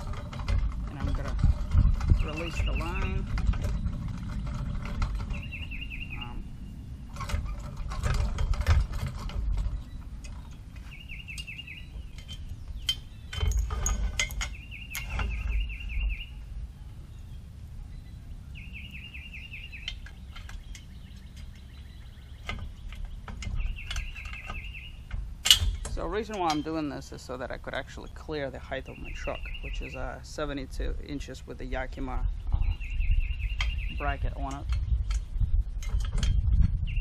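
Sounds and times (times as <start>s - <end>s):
rope hoist pulleys clattering: 0.0s - 6.2s, 7.1s - 15.9s, 19.8s - 30.1s
bird chirping: 0.0s - 37.0s.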